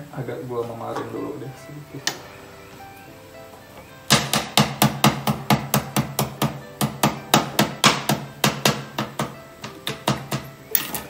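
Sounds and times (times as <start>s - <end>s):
pounding knocks: 3.6s - 10.7s.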